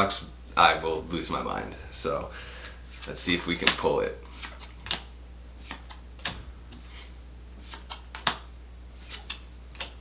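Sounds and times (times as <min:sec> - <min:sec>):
low steady hum: 0:00.0 - 0:10.0
cards flicked by hand: 0:02.6 - 0:06.9, 0:07.6 - 0:10.0.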